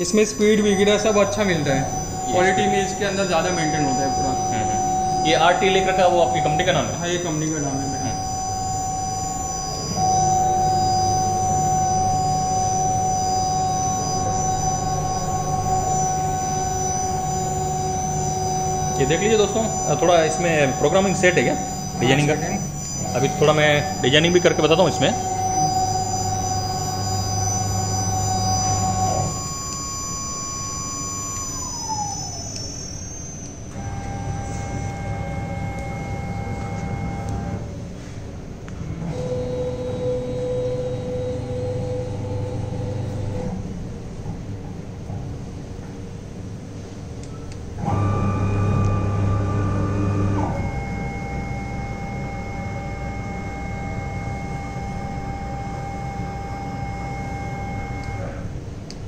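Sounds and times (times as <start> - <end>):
router motors whining: 0.0 - 37.7
low hum: 0.0 - 45.7.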